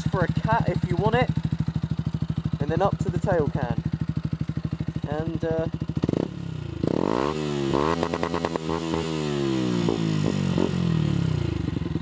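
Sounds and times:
motorcycle engine revving: 0.0s - 12.0s.

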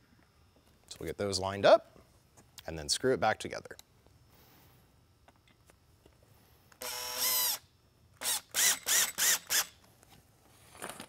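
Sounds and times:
cordless drill motor whine: 6.8s - 9.8s.

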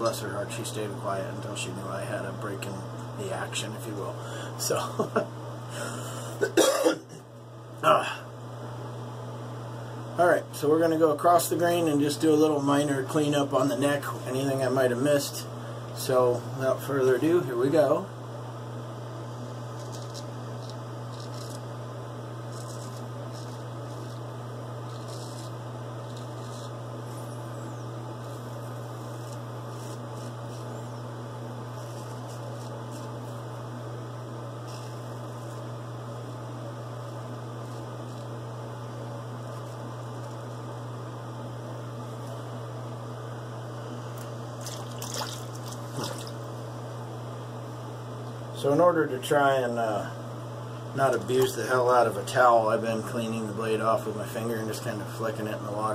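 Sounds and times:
steady low hum: 0.0s - 55.9s
razor scraping stubble: 19.2s - 33.6s, 34.6s - 36.4s, 37.0s - 38.5s, 39.4s - 40.6s
small water splashes: 44.6s - 46.4s.

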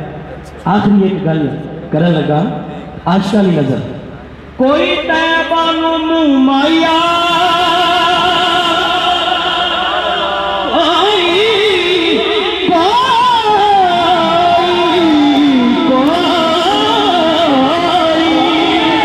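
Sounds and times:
person singing solo: 6.6s - 19.0s.

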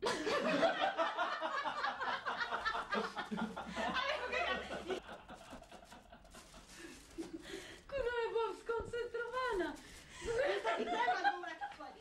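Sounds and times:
woman laughing: 9.3s - 12.0s.

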